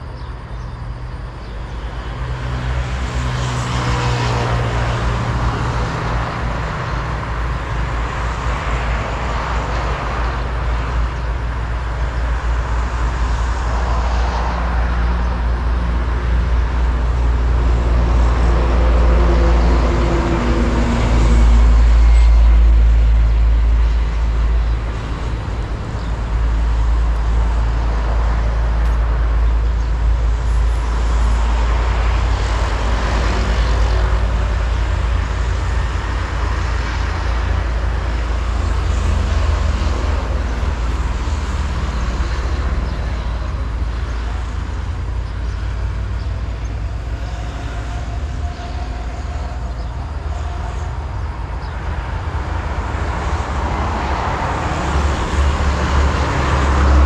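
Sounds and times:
low rumble of road traffic: 0.0 - 57.0
vehicle passing: 31.1 - 57.0.

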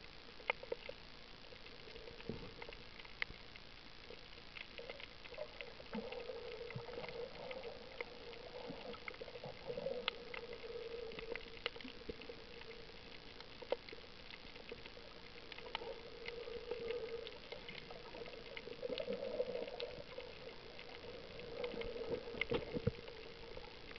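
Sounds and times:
muffled underwater hum: 0.0 - 23.9
sharp underwater clicks and crackles: 0.0 - 23.9.

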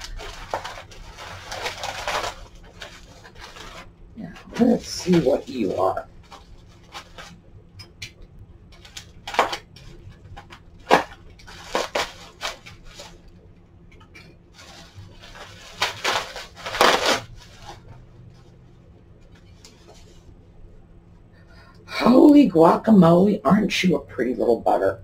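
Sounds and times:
bubble wrap crinkling: 0.0 - 7.4, 8.7 - 13.5, 14.5 - 20.3.

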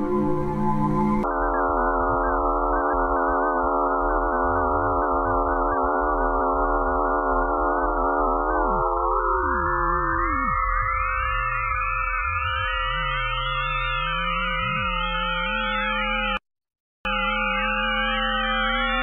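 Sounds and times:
steady electronic hum: 0.0 - 1.3
wavering electronic tones: 0.0 - 1.3, 8.5 - 16.4, 17.1 - 19.0.

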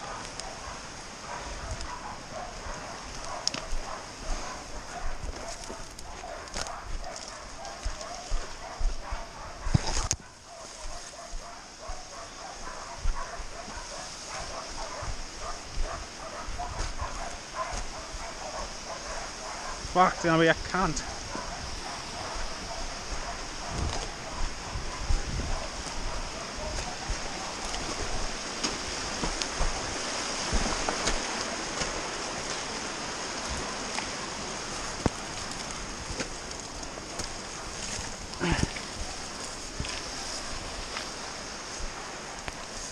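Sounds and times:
dog barking rapidly: 0.0 - 20.0, 21.0 - 27.6
creek water rushing: 0.0 - 42.9
knocks and brushing through scrub: 23.7 - 42.9.

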